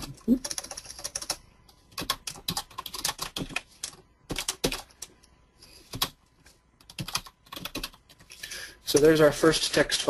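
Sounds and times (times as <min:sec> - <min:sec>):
typing on computer keyboard: 0:00.0 - 0:05.2, 0:06.8 - 0:08.3.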